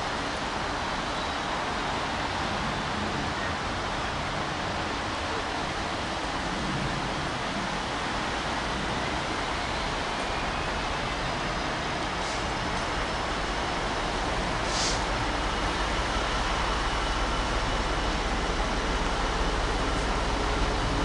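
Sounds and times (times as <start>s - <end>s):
distant diesel locomotive rumble: 0.0s - 21.0s
steady hiss: 12.0s - 18.4s.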